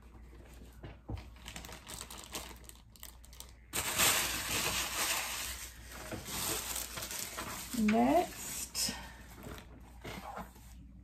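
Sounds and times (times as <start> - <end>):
plastic packaging crinkling: 1.2 - 8.5.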